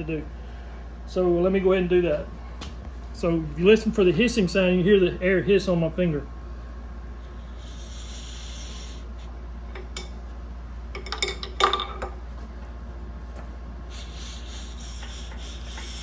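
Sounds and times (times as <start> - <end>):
compressed air hissing: 7.2 - 9.4, 13.9 - 16.0.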